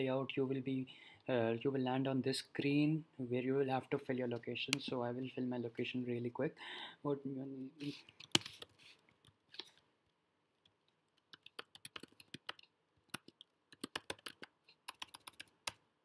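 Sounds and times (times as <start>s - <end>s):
computer keyboard typing: 8.1s - 9.4s, 11.2s - 15.8s.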